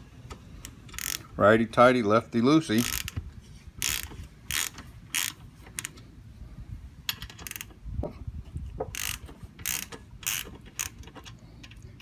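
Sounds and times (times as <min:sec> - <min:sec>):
ratchet wrench clicking: 0:00.6 - 0:01.3, 0:02.8 - 0:03.2, 0:03.8 - 0:06.0, 0:07.1 - 0:07.8, 0:08.9 - 0:12.0.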